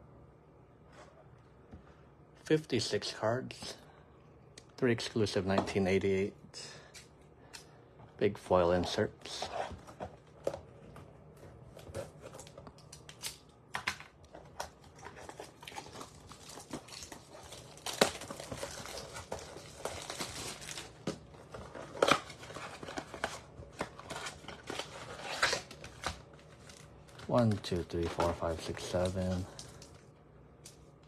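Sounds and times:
plastic wrapping crinkling and tearing: 14.4 - 30.1.

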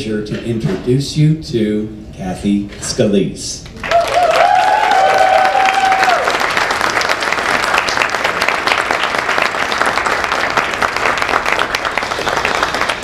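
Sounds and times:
person cheering: 3.8 - 6.4
audience applauding: 3.8 - 13.0.

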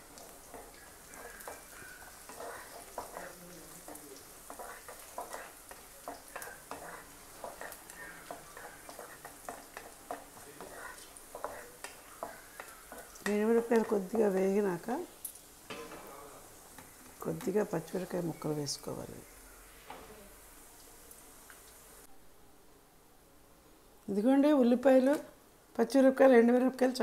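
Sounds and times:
oil sizzling: 0.0 - 22.1
wooden spatula scraping pan: 0.5 - 14.6.

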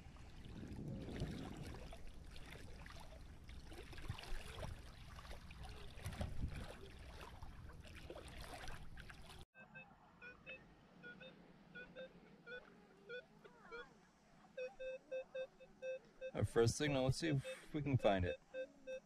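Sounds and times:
water splashing around legs: 0.0 - 9.4.

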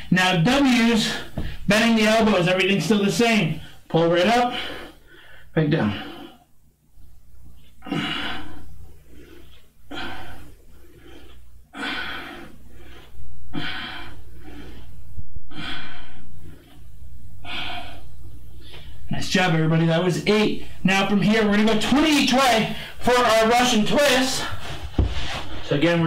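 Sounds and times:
man breathing hard: 4.5 - 6.5, 7.7 - 19.1.

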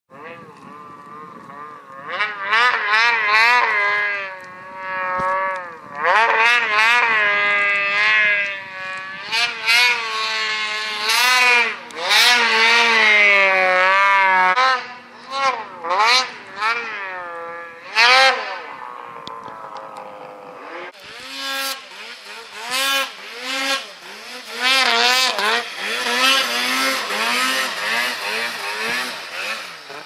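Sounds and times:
snowmobile engine revving: 0.1 - 30.0.

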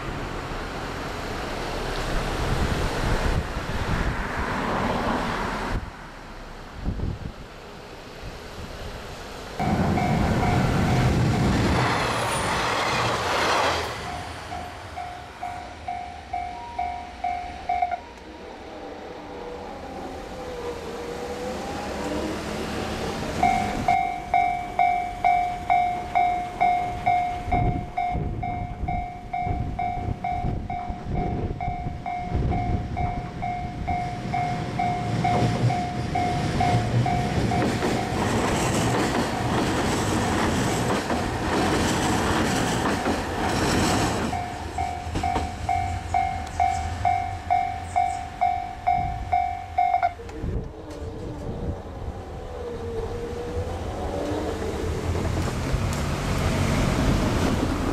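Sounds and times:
railcar passing over rails: 0.0 - 57.9.

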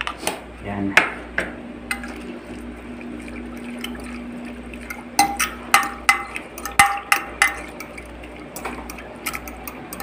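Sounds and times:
liquid swishing: 1.9 - 10.0
fork clinking against glass: 5.2 - 10.0.

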